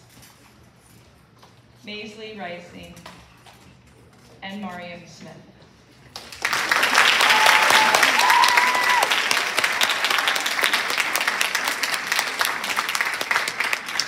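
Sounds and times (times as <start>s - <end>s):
audience applauding: 6.2s - 14.0s.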